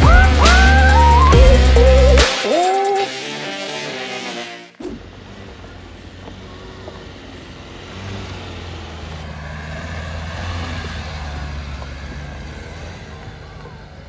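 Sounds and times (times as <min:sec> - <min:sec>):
diesel engine pulling at low revs: 0:00.0 - 0:02.3, 0:04.8 - 0:14.0.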